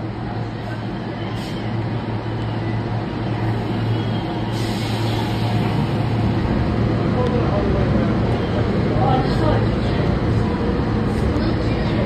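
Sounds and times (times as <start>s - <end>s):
subway car humming: 0.0s - 12.0s
hiss: 4.5s - 5.8s.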